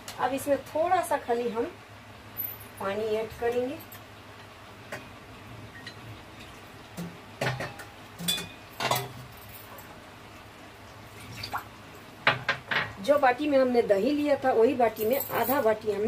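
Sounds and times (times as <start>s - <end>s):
steel utensils clinking on a pot: 7.4s - 9.2s.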